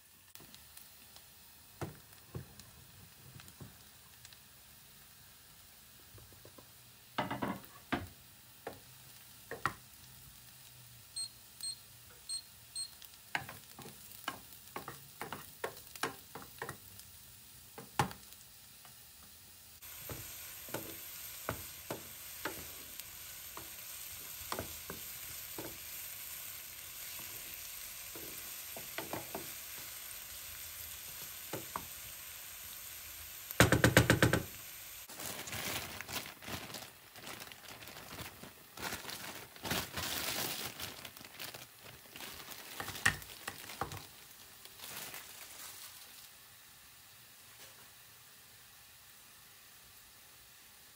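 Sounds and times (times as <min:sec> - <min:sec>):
food sizzling in a frying pan: 0:00.0 - 0:50.9
utensil tapping a pan: 0:09.5 - 0:09.8, 0:13.4 - 0:16.8, 0:28.1 - 0:29.5, 0:33.6 - 0:34.5.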